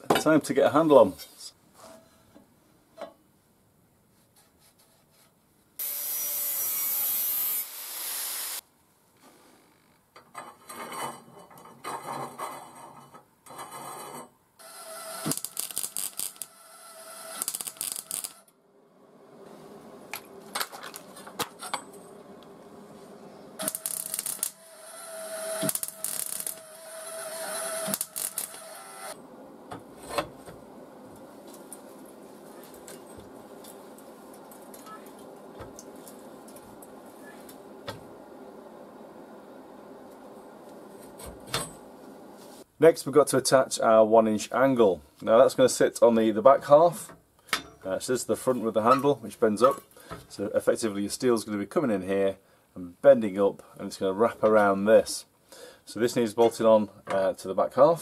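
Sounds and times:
hissing power tool on steel: 5.8 - 8.6, 14.6 - 18.4, 21.6 - 29.2
irregular crackling: 15.2 - 16.5, 17.3 - 18.6, 19.3 - 24.6, 25.6 - 41.2.

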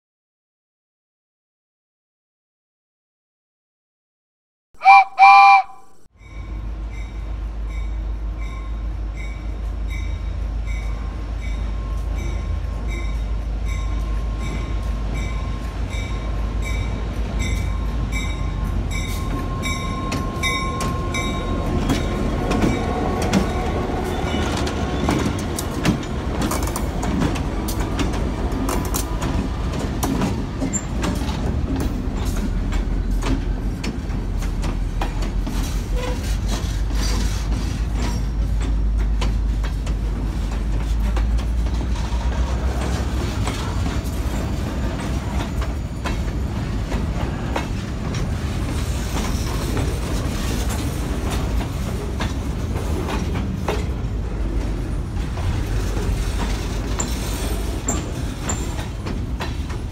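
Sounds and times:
diesel locomotive rumbling: 4.8 - 59.9.

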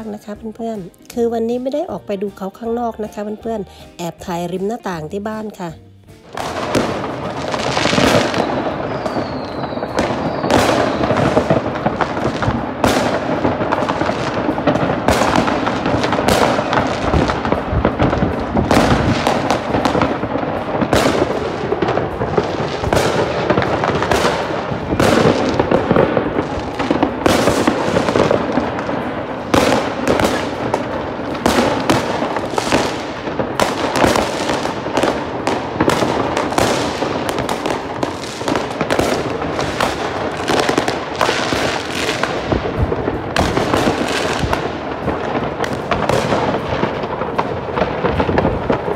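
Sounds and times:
fireworks bangs and crackling: 6.2 - 48.9
falling firework whistle: 7.9 - 11.6, 23.8 - 28.3.

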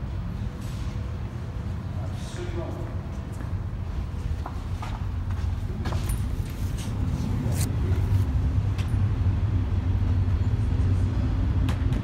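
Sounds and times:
railcar engine rumble: 5.0 - 11.7.

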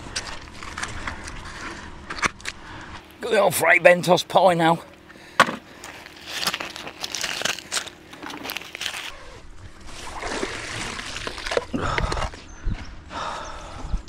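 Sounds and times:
crunching crinkling handling noise: 0.0 - 3.2, 5.0 - 12.4
wet rope rustling: 5.8 - 11.7.

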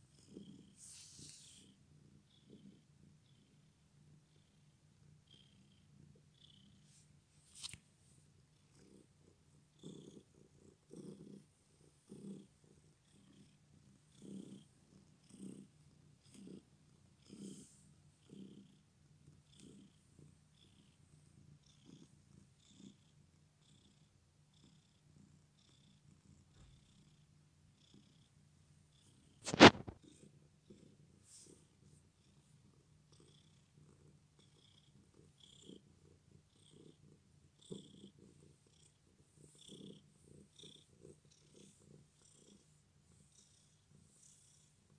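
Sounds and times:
cat purring: 0.0 - 7.4, 8.0 - 44.9.

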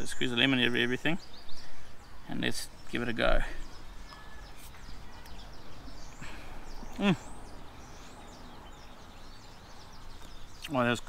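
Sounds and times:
faint bird chirps: 0.0 - 11.0
man humming: 6.9 - 7.3.

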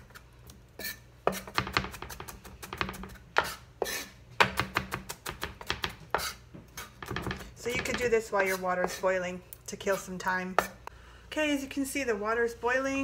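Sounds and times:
knife chopping on wooden board: 1.2 - 8.1.

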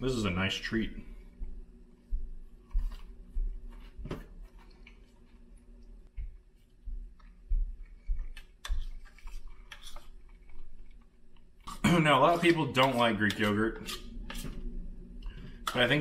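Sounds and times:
faint steady hum: 0.0 - 16.0
person chewing: 4.5 - 6.0, 6.6 - 11.8
spoon scooping in plastic bowl: 8.3 - 14.7.

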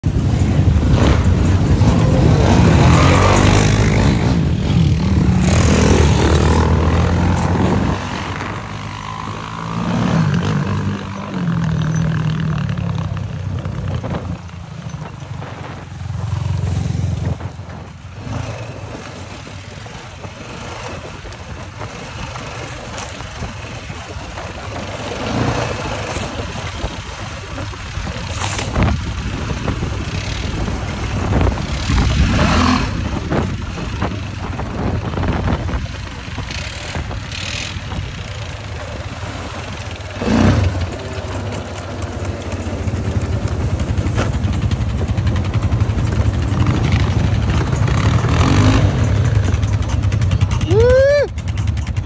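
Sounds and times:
atv engines revving: 0.0 - 52.0.

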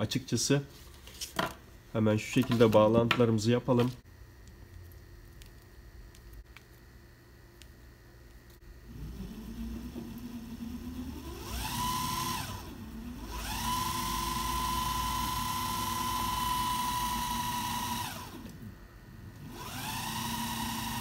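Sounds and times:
small electric motor whining: 8.8 - 18.6, 19.4 - 21.0.

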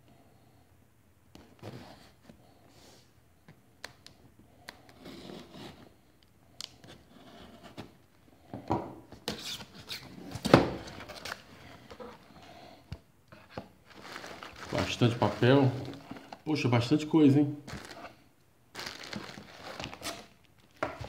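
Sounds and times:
shredded paper rustling: 13.9 - 16.1.

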